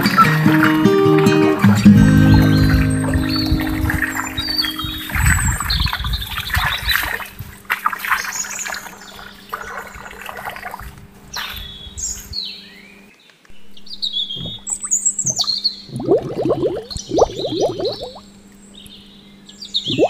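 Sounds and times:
water trickling and splashing: 1.4s - 11.8s, 14.3s - 18.6s
birds chirping: 1.8s - 7.2s, 11.6s - 20.0s.

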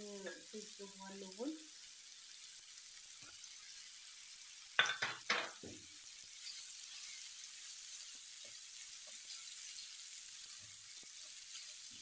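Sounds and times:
chicken sizzling in oil: 0.0s - 12.0s
spatula stirring in pan: 5.5s - 12.0s.

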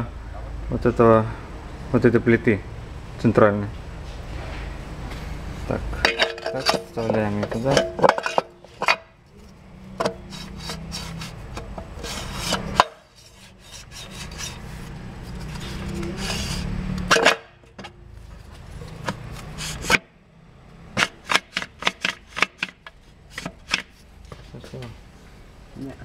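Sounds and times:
metal scraping: 4.0s - 20.1s.

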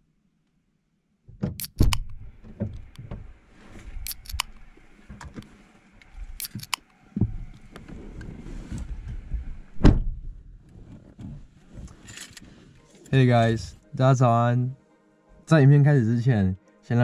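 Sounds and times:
car door opening: 1.3s - 5.6s, 9.8s - 10.2s
heavy thump: 9.4s - 10.4s.

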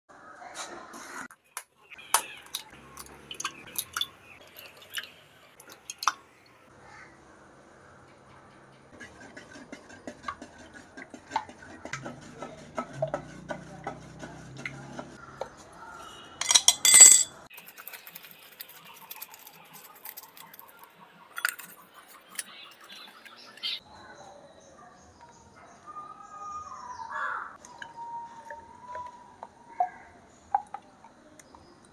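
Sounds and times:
beating eggs in bowl: 8.9s - 15.2s, 17.5s - 23.8s
kitchenware clatter: 16.4s - 17.9s.

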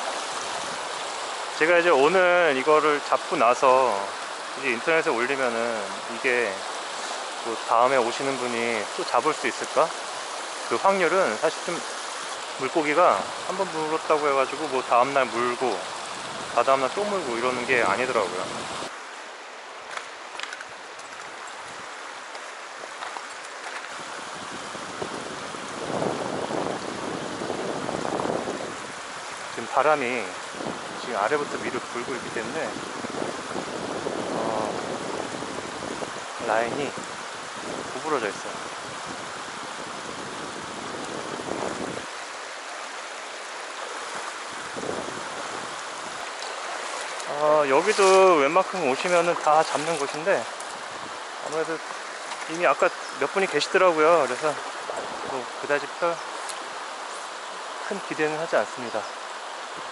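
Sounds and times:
wind rumbling on microphone: 0.0s - 2.3s, 15.4s - 18.9s, 22.7s - 57.8s
stream rushing over stones: 0.0s - 59.9s.

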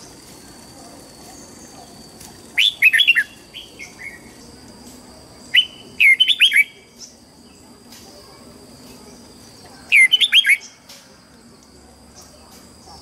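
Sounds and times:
bird singing whistled notes: 1.3s - 4.5s, 5.4s - 7.6s, 9.4s - 10.8s.

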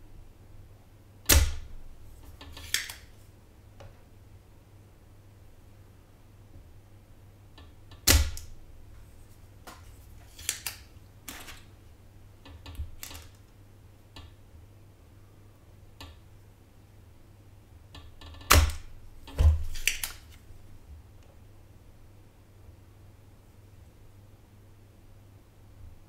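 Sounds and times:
desoldering pump snapping: 2.3s - 3.1s, 9.7s - 11.6s, 18.5s - 20.4s.

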